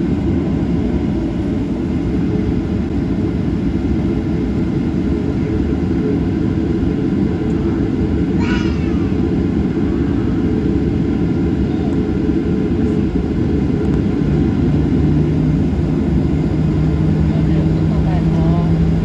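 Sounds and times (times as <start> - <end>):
jet engines idling: 0.0 - 19.0.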